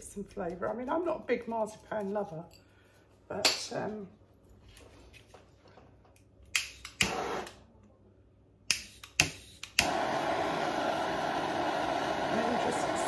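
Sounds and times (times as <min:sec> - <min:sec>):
blowtorch igniter clicks: 0:08.7 - 0:10.6
gas hissing: 0:08.7 - 0:13.0
blowtorch flame hissing: 0:09.8 - 0:13.0.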